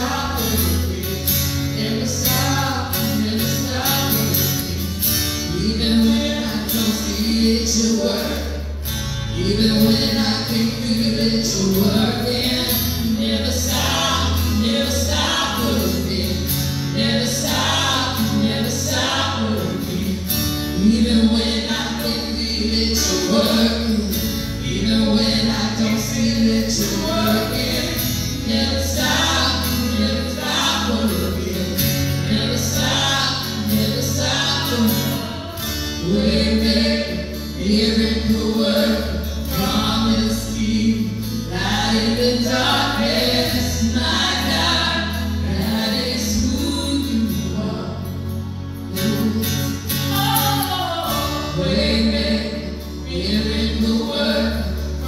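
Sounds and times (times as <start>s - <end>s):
women singing: 0.0s - 8.7s, 9.4s - 47.8s, 48.9s - 55.0s
keyboard and guitar: 0.0s - 55.0s.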